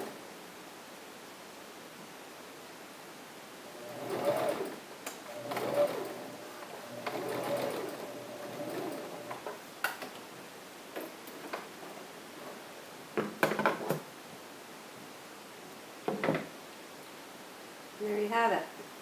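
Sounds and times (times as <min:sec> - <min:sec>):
sewing machine stitching: 0:03.7 - 0:09.5.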